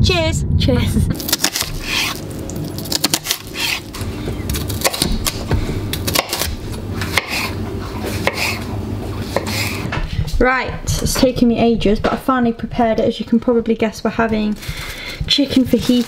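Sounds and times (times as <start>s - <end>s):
steady low hum: 0.0s - 16.0s
knife chopping on wooden board: 3.0s - 8.6s, 9.3s - 9.9s.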